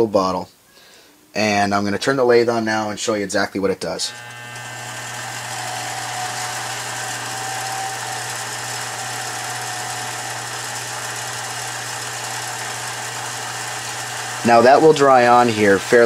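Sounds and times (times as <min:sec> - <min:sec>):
lathe motor hum: 0:04.0 - 0:16.0.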